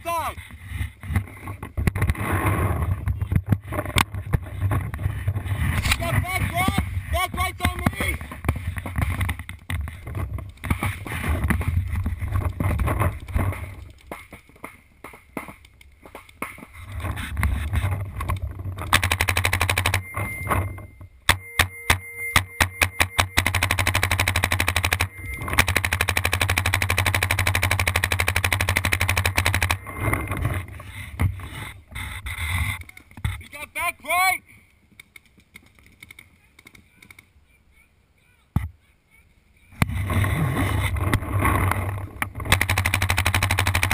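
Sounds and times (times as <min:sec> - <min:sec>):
paintball markers firing: 0:18.8 - 0:20.0, 0:22.4 - 0:29.8, 0:42.3 - 0:43.9.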